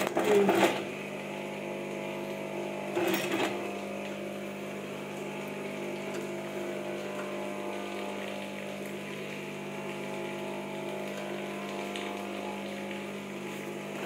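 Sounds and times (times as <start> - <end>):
sewing machine stitching: 0.0 - 0.9, 2.9 - 3.6.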